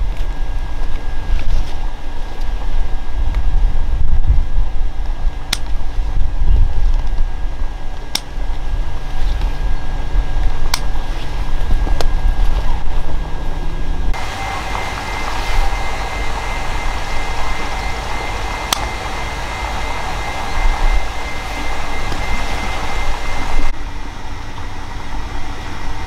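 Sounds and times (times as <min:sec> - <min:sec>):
motor rumbling: 0:00.0 - 0:26.0
steady high whine: 0:00.0 - 0:26.0
sharp clicks: 0:08.1 - 0:08.3, 0:18.7 - 0:19.0.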